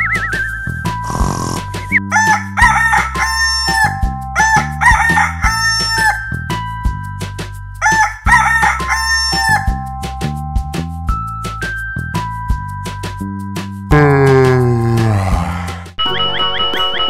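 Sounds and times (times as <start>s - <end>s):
background music: 0.0s - 17.0s
rooster crowing: 2.1s - 6.2s, 7.8s - 9.7s.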